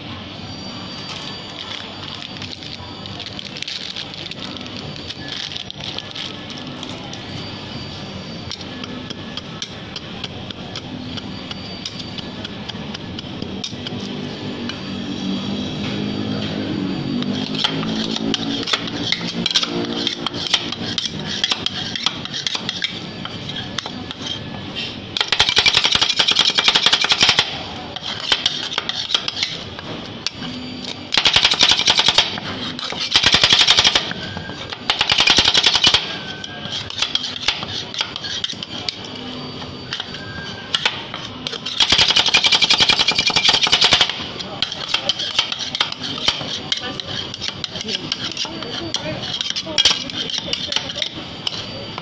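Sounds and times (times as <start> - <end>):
spatulas scraping: 17.2 - 31.4, 32.1 - 52.0
spatulas chopping on steel plate: 40.8 - 52.0.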